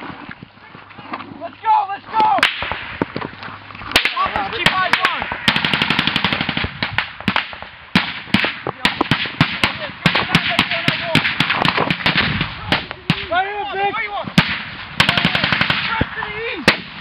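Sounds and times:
single gunshots: 2.4 - 3.0, 4.0 - 13.3, 14.4 - 17.0
automatic gunfire burst: 4.0 - 12.9, 14.4 - 15.9.

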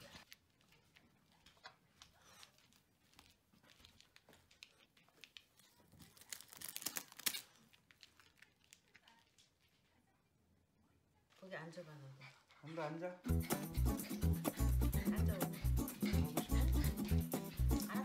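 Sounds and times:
plastic bag crinkling: 0.0 - 9.9.

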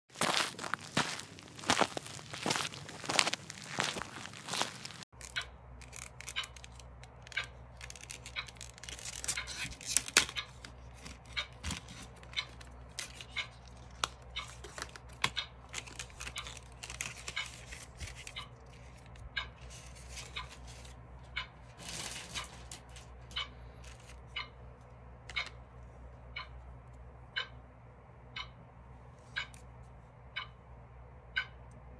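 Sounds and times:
plastic packaging crackling: 0.2 - 20.4
clock ticking: 5.2 - 9.6, 10.2 - 15.6, 18.3 - 19.6, 21.2 - 25.6, 26.2 - 26.7, 27.3 - 27.6, 28.3 - 28.6, 29.4 - 29.6, 30.2 - 30.7, 31.3 - 31.9.

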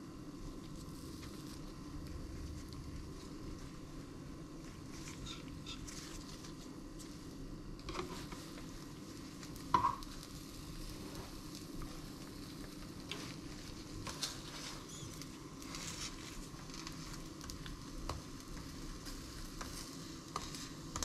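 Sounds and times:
omelette sizzling in frying pan: 0.0 - 21.0
spatula scrapes and clicks: 16.0 - 21.0.

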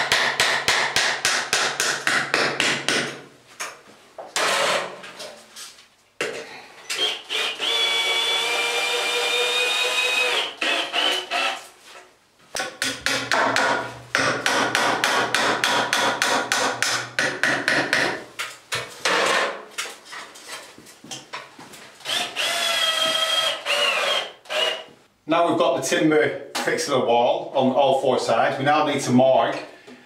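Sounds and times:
drill driver whining: 6.9 - 11.6, 22.1 - 24.9.

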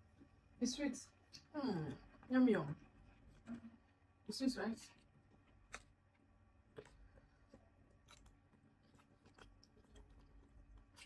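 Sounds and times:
faint chewing: 4.8 - 11.0.

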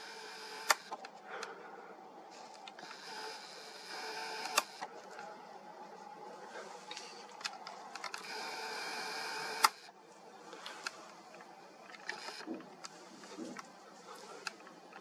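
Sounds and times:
small motor whirring: 0.0 - 1.0, 2.8 - 4.9, 8.2 - 9.9, 12.0 - 12.5
sharp clicks: 0.6 - 1.2, 4.2 - 4.9, 9.4 - 9.9.

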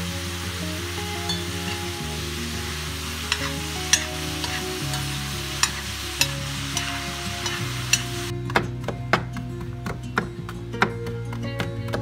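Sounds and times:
food sizzling in a skillet: 0.0 - 8.3
soft music with held notes: 0.0 - 12.0
spoon scraping a pan: 3.1 - 8.3.

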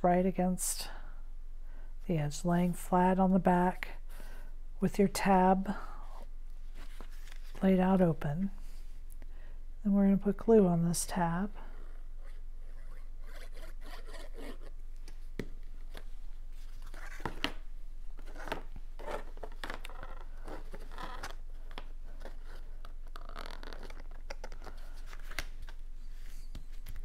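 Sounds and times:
cardstock rustling and scraping: 13.4 - 17.6.

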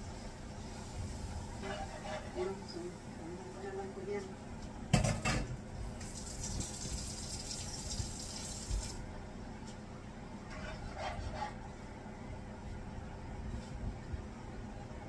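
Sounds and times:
kitchen tap running: 6.0 - 9.0.

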